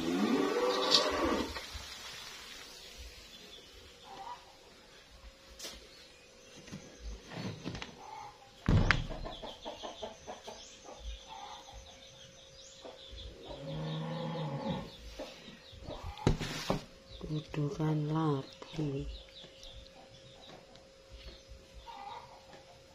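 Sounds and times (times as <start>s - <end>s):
chickens calling: 0.0s - 2.0s, 3.9s - 4.8s, 6.7s - 16.7s, 19.1s - 22.9s.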